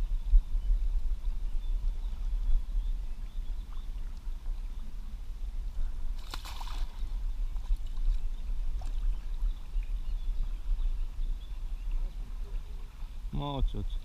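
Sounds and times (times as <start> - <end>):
water sloshing: 6.1 - 9.7
short water splash: 6.2 - 7.2.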